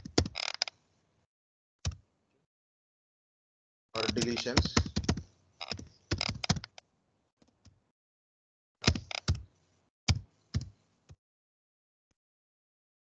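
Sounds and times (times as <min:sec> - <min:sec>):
computer keyboard typing: 0:04.0 - 0:06.8.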